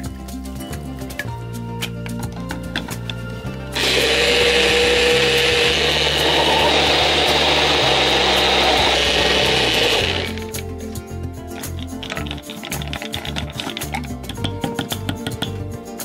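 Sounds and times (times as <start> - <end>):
blender motor running: 3.8 - 10.5.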